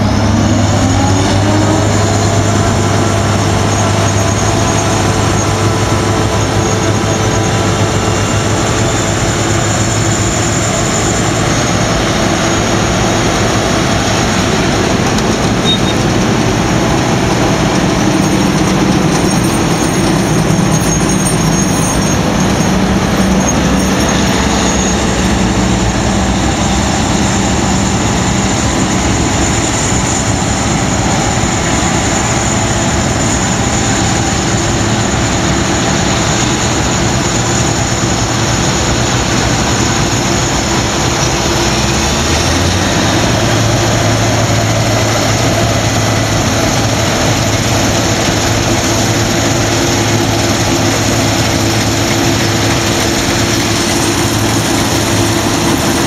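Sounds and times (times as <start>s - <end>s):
combine harvester engine and machinery: 0.0s - 56.0s
deep engine hum: 0.0s - 56.0s.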